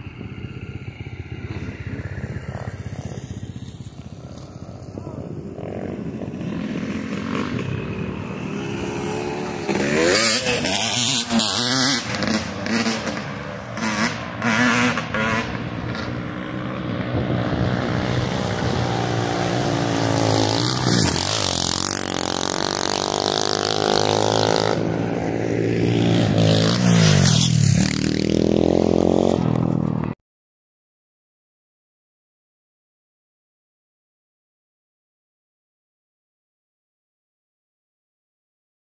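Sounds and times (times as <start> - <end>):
dirt bike engine revving: 5.5 - 29.8.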